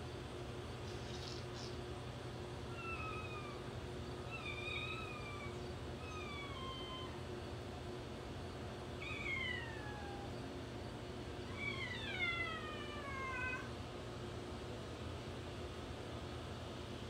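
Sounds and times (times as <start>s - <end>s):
kitten meowing: 2.7s - 3.6s, 4.3s - 7.2s, 9.0s - 10.3s.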